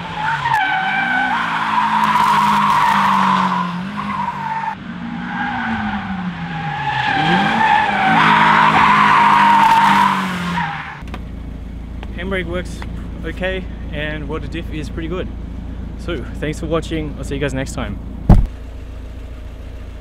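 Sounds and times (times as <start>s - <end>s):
car engine revving: 0.0s - 11.1s.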